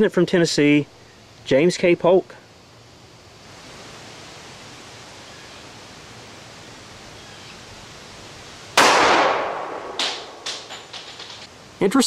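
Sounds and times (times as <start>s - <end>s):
faint outdoor hiss: 0.0s - 12.0s
pistol shot: 8.8s - 10.7s.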